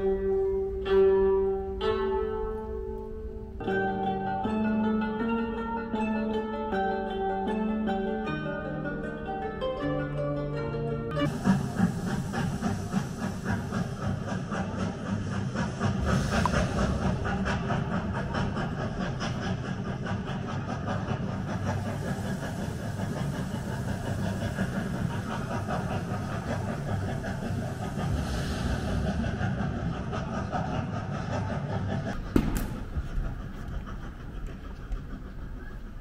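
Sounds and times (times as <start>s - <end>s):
hissing steam: 11.2s - 36.0s
train wheels clattering on rails: 11.2s - 36.0s.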